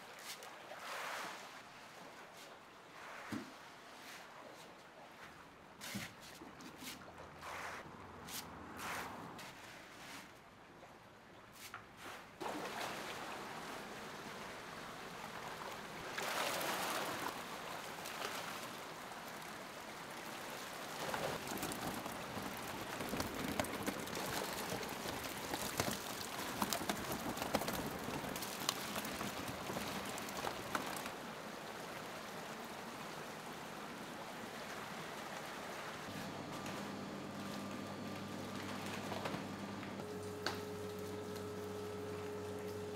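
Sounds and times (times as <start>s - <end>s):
sharp little splashes: 12.4s - 13.6s.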